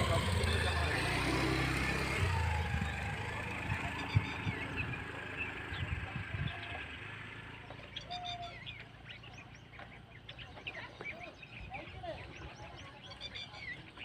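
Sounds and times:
bus diesel engine running: 0.0 - 10.6
birds chirping: 0.0 - 14.0.

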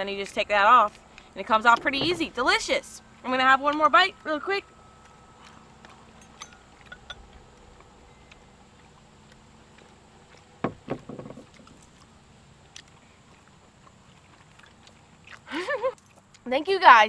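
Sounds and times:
faint steady hum: 0.0 - 17.0
sharp knocks: 1.8 - 2.8.

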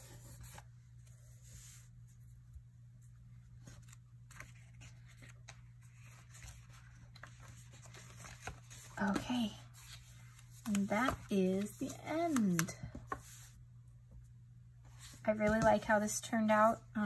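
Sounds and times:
page turning: 3.6 - 13.4.

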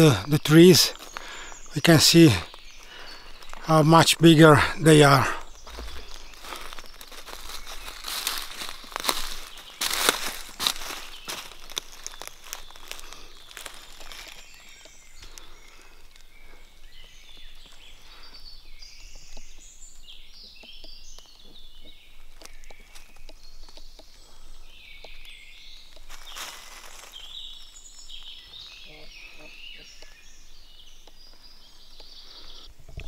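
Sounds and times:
woodland birds singing: 0.0 - 33.0
footsteps on dry leaves: 0.9 - 18.3, 25.6 - 28.9.

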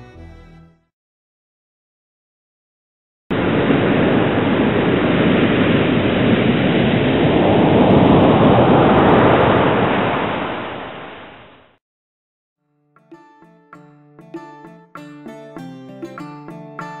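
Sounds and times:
boat wake rushing: 3.3 - 11.6.

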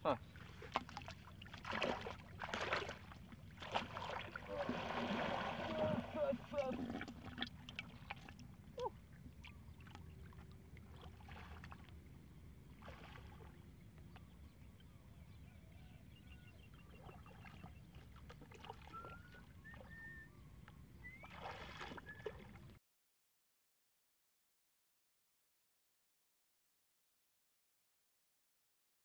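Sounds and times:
water sloshing and splashing: 0.2 - 14.5, 16.7 - 20.2, 21.0 - 22.8.

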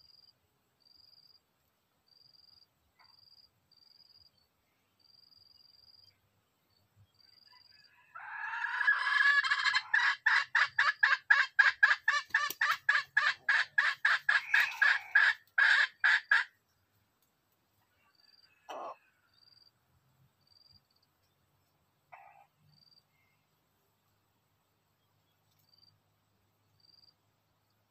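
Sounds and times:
junglefowl rapid clucking: 8.2 - 16.6.

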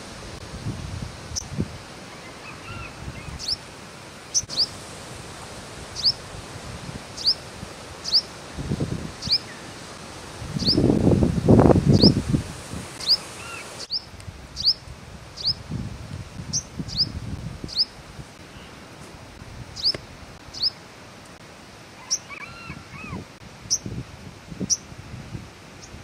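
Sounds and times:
bird sharp high calls: 2.1 - 3.6, 4.3 - 4.7, 7.2 - 7.4, 8.0 - 8.3, 13.0 - 14.8, 19.8 - 20.8, 22.0 - 23.8.

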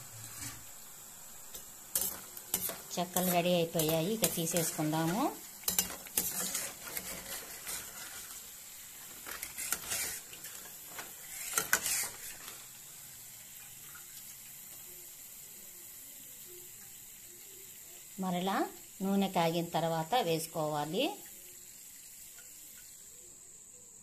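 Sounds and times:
metal skimmer scraping a pan: 0.0 - 0.8, 1.5 - 8.5, 9.1 - 12.7
oil sizzling: 0.0 - 24.0.

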